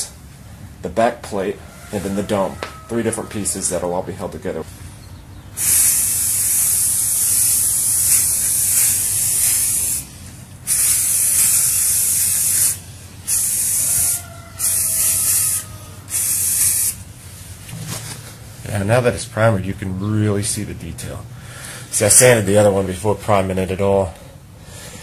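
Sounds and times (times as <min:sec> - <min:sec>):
aerosol spray can hissing: 0:05.6 - 0:17.1.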